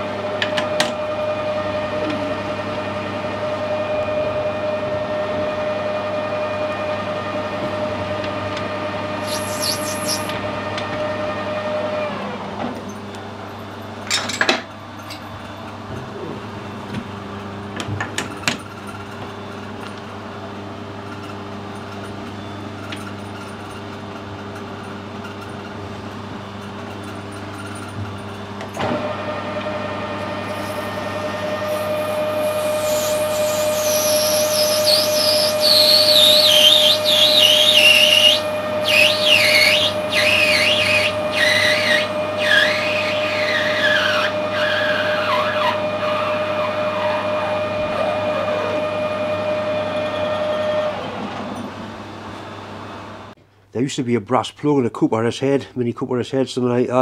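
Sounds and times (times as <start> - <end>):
metal lathe whining: 0.0 - 12.4, 29.0 - 51.8.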